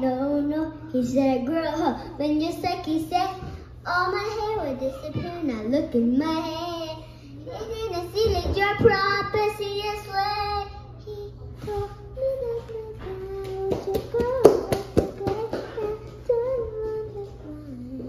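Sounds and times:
girl singing: 0.0s - 18.0s.

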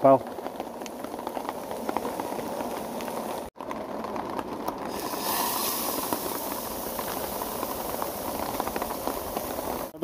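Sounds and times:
food sizzling with small pops: 0.0s - 10.0s
steak frying hiss: 4.9s - 9.9s.

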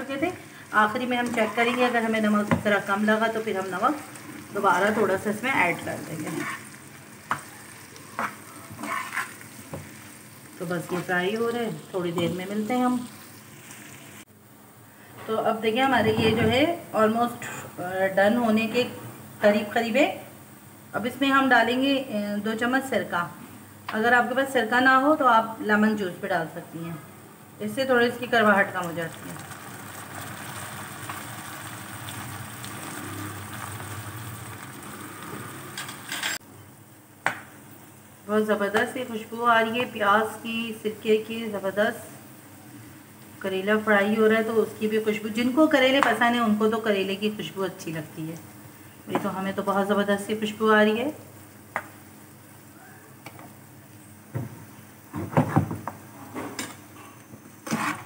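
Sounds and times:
vegetables sizzling in oil: 0.0s - 14.3s, 27.6s - 36.4s
faint frying sizzle: 0.0s - 55.2s
spoon stirring in pan: 1.2s - 2.7s, 5.7s - 10.2s.

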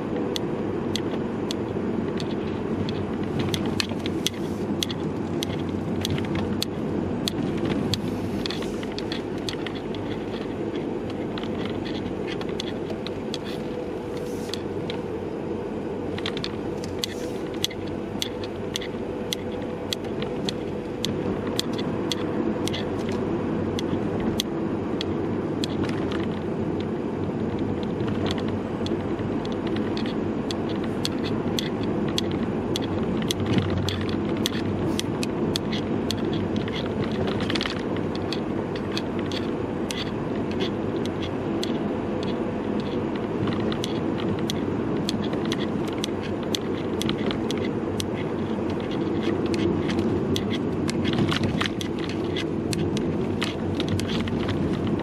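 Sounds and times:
car road and engine noise: 0.0s - 55.0s
camera strap rattling: 7.3s - 15.2s, 29.6s - 55.0s.

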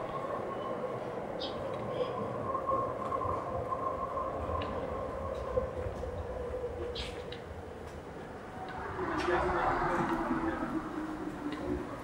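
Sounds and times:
train rumbling: 0.0s - 12.0s.

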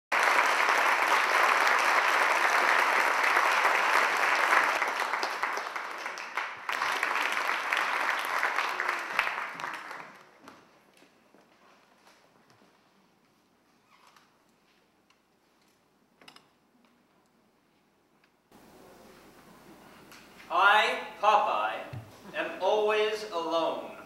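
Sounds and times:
audience applauding: 0.1s - 10.5s.

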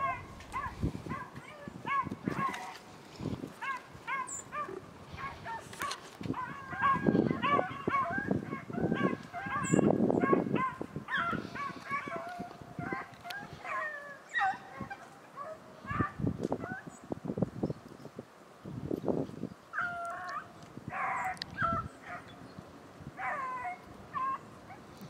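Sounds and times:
dogs baying and yelping: 0.0s - 2.8s, 3.6s - 16.9s, 19.8s - 22.4s, 23.2s - 25.0s
rustling noise: 0.0s - 7.4s.

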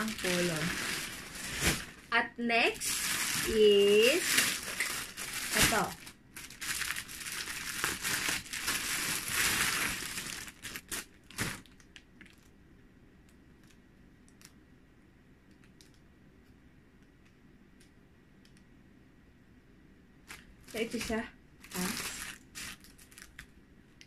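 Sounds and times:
packaging crinkling: 0.0s - 2.1s, 2.7s - 12.5s, 20.3s - 23.6s
faint clicks: 15.4s - 18.7s.

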